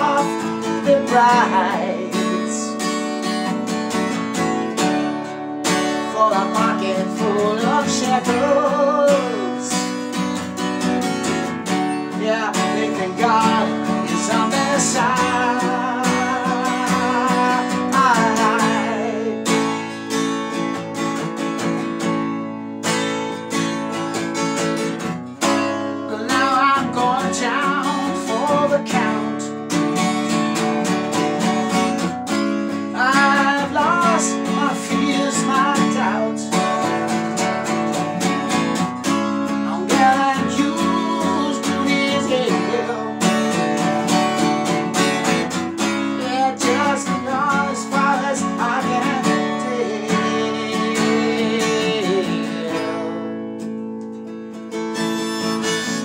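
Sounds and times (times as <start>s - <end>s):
acoustic guitar strummed: 0.0s - 56.0s
harmonica solo: 54.7s - 56.0s.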